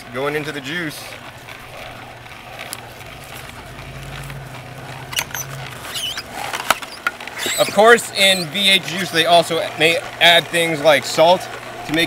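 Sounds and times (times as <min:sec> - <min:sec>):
juicer motor hum: 0:00.0 - 0:12.0
leafy greens crackling: 0:00.0 - 0:12.0.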